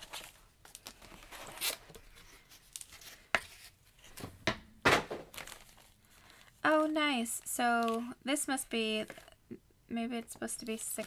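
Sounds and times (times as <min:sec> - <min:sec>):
packaging clicks and crinkles: 0:05.3 - 0:09.3, 0:10.3 - 0:11.0.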